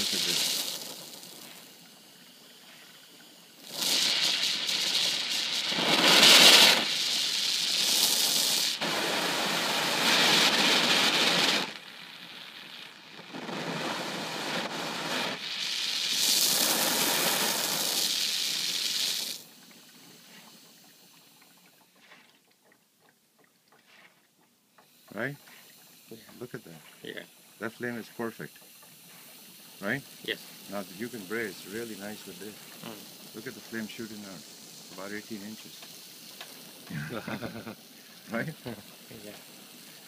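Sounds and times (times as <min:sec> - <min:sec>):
torch flame rushing hiss: 0:00.0 - 0:21.0, 0:24.8 - 0:40.0.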